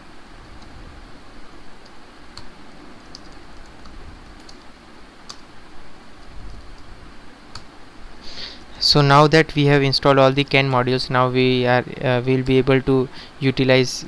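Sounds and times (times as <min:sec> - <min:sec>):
low background hum: 0:00.0 - 0:14.0
keyboard typing: 0:01.8 - 0:04.7.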